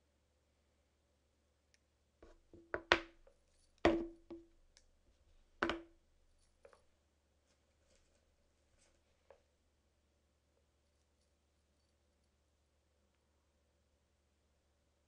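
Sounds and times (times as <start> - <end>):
knocks on hard surface: 2.2 - 3.2, 3.9 - 4.5, 5.6 - 5.9.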